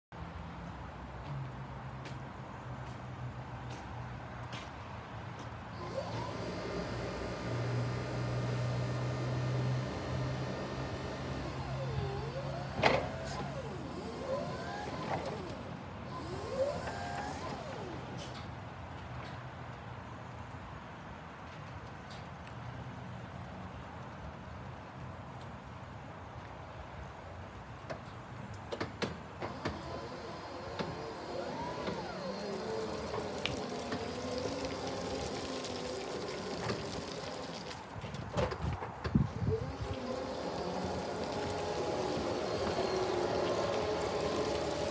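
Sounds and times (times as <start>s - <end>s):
electric motor hum: 5.8s - 18.1s, 29.5s - 37.7s, 39.3s - 44.9s
tyre noise on wet concrete: 30.9s - 44.9s
motor whine sweeping in pitch: 39.4s - 44.9s.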